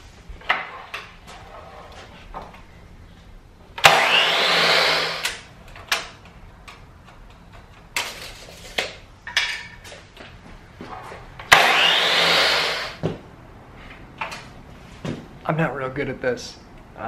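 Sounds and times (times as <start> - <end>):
miter saw cutting wood: 3.8 - 5.4, 11.5 - 13.0.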